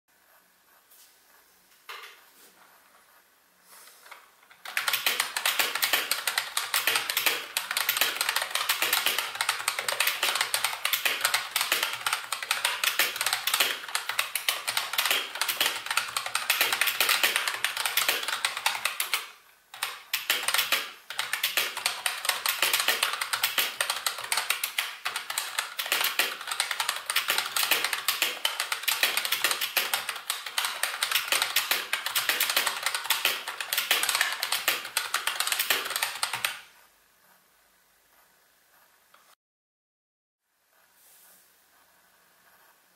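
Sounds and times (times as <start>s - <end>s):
fast keyboard typing: 4.5s - 36.7s.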